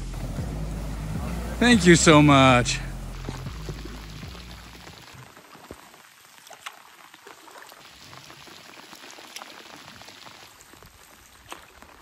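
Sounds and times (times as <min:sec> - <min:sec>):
light rain patter: 0:00.0 - 0:12.0
louder water drips: 0:03.0 - 0:12.0.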